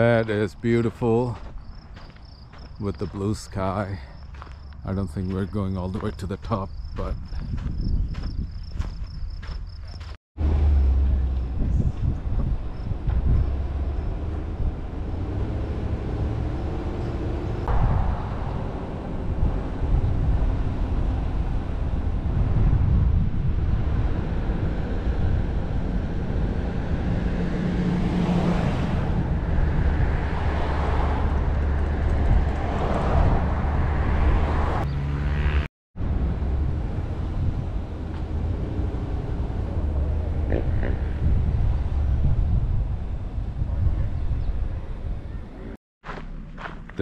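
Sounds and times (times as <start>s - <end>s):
wind noise gusts: 0.0s - 45.8s
car engine and road noise: 0.0s - 47.0s.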